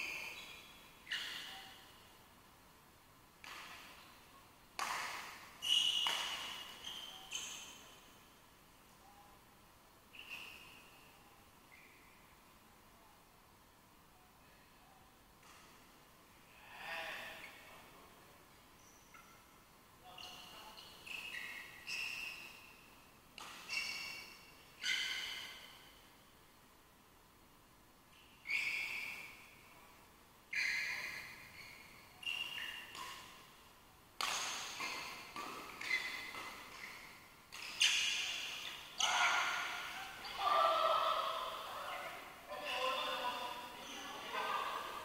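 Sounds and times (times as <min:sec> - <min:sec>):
rackets hitting shuttlecock: 0:04.8 - 0:07.8, 0:23.4 - 0:25.7, 0:34.2 - 0:40.2
shoes squeaking on hard floor: 0:05.6 - 0:07.8, 0:20.2 - 0:22.6, 0:23.5 - 0:25.5, 0:30.5 - 0:33.4, 0:34.2 - 0:40.3.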